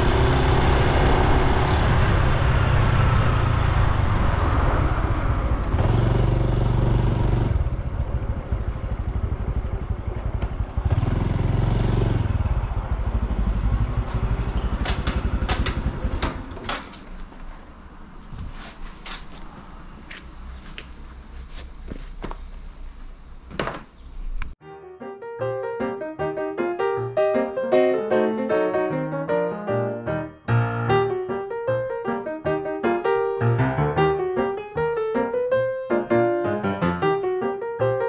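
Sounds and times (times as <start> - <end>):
motorcycle engine running: 0.0 - 17.2
sharp clicks and knocks: 14.2 - 17.5.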